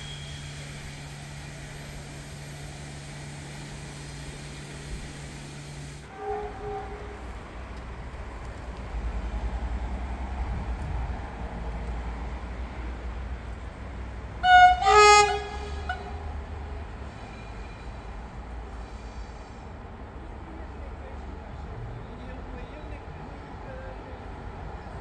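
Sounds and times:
train rumbling: 0:00.0 - 0:21.8
locomotive horn blasts: 0:06.0 - 0:07.4, 0:14.4 - 0:16.3.

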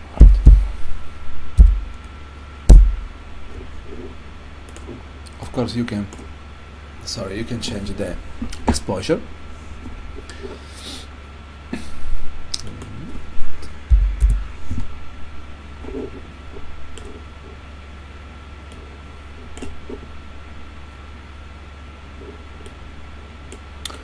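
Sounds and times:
heavy low thumps: 0:00.0 - 0:02.0, 0:02.7 - 0:03.2, 0:13.9 - 0:14.6
low electrical hum: 0:00.0 - 0:24.0
thin steady whine: 0:00.0 - 0:24.0.

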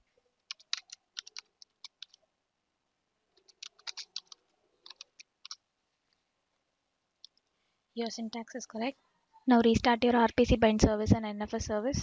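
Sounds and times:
keyboard keys clicking: 0:00.4 - 0:02.2, 0:03.4 - 0:05.6.

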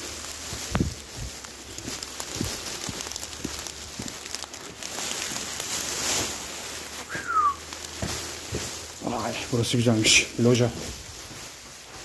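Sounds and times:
rain hiss: 0:00.0 - 0:11.0
footsteps on wet stone: 0:00.0 - 0:12.0
short falling whistle: 0:07.1 - 0:07.6.

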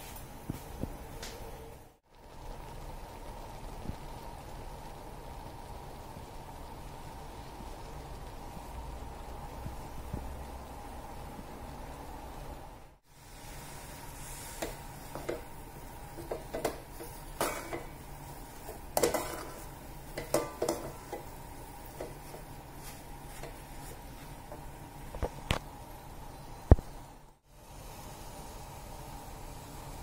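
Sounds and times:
low hiss: 0:00.0 - 0:30.0
metal spoon scraping a pan: 0:16.2 - 0:22.4.

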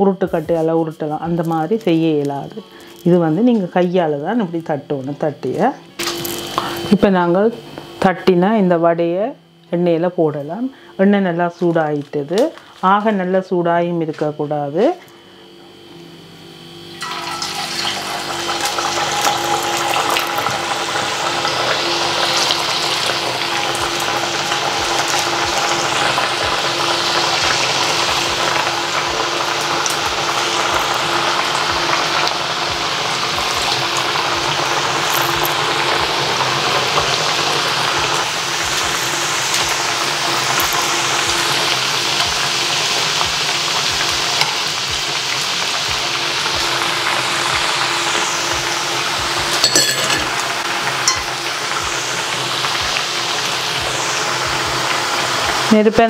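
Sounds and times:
fritters sizzling in hot oil: 0:06.0 - 0:07.0, 0:17.0 - 0:56.0.

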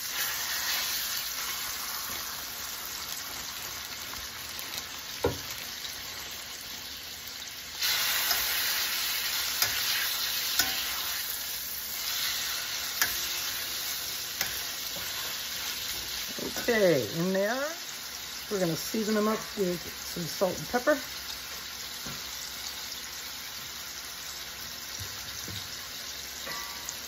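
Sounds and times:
chicken sizzling in a frying pan: 0:00.0 - 0:27.0
metal tongs clicking on pan: 0:08.0 - 0:11.1, 0:13.0 - 0:13.6, 0:14.4 - 0:15.3.

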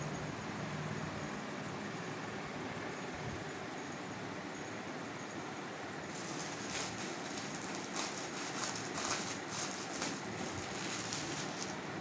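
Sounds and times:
plastic packaging crinkling: 0:06.1 - 0:11.8.

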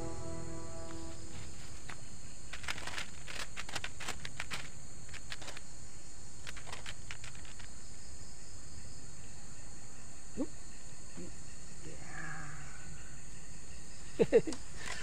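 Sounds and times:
rising chirp: 0:00.0 - 0:01.6
insects chirring: 0:00.0 - 0:15.0.

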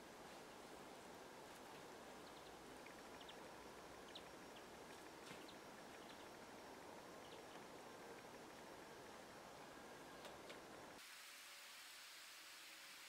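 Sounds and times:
faint steady hiss: 0:00.0 - 0:13.0
distant bird chirps: 0:02.2 - 0:08.6.

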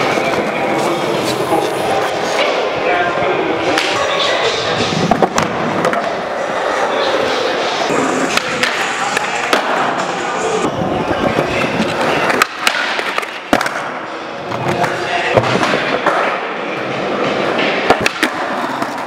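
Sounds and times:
skateboard wheels rolling on concrete: 0:00.0 - 0:19.0
skateboard clacking on ground: 0:11.4 - 0:13.9.

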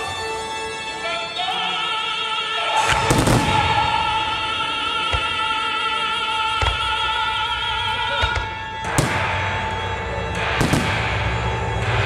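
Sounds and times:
operatic voice singing: 0:00.8 - 0:09.8
firework shells booming: 0:02.9 - 0:04.0, 0:08.2 - 0:11.9.

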